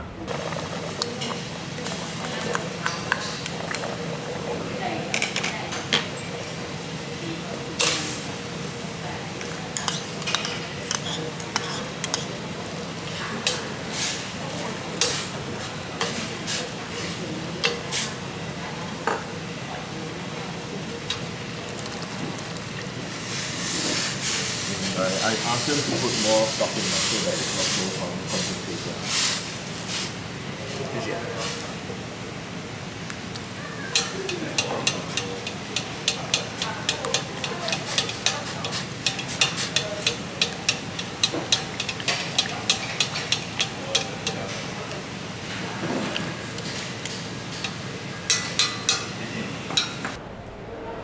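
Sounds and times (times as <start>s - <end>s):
broth bubbling in a pot: 0.2s - 26.2s, 32.0s - 50.1s
metal ladle clinking on pot: 33.9s - 44.6s, 47.5s - 49.2s.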